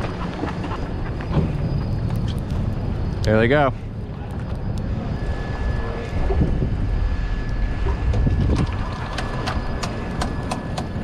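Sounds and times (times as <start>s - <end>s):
wind on microphone: 4.8s - 11.0s.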